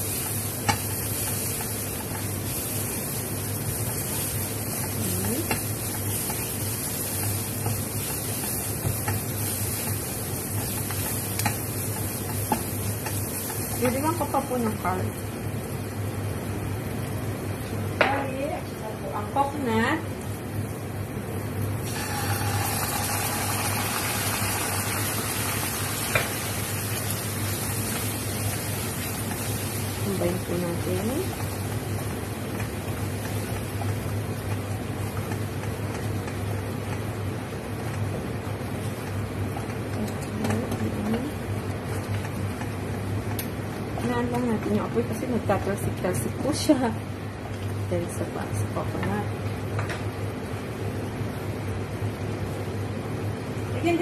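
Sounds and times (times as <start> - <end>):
wooden spatula stirring: 0.0 - 14.8
food sizzling in frying pan: 0.0 - 54.0
low steady hum: 0.0 - 54.0
spatula tapping on pan: 0.6 - 0.9, 10.6 - 14.0.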